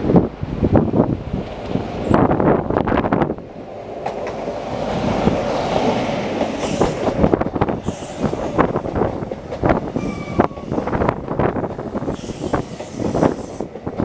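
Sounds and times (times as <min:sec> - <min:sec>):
diesel engine of passing train: 0:00.0 - 0:14.0
hiss from train wheels: 0:04.6 - 0:14.0.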